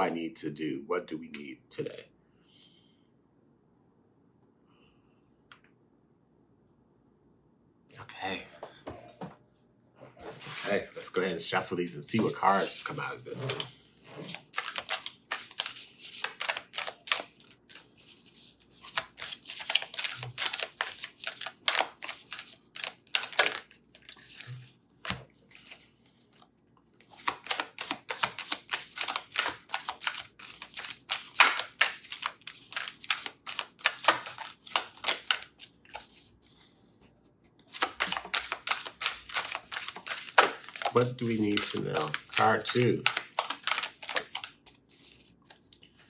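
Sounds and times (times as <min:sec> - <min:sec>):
cards being shuffled: 0:12.1 - 0:36.6, 0:37.6 - 0:45.7.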